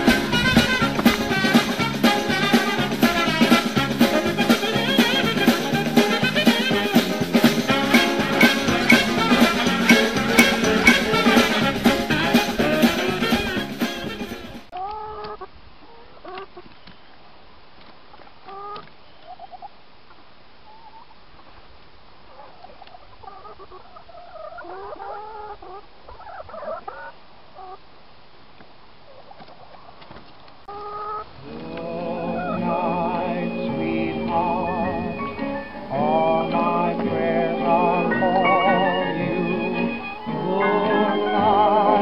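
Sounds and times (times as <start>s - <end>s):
hens clucking: 0.0s - 13.5s, 14.7s - 16.7s, 18.1s - 19.7s, 22.3s - 27.8s, 29.1s - 42.0s
music: 0.0s - 14.7s, 31.9s - 42.0s.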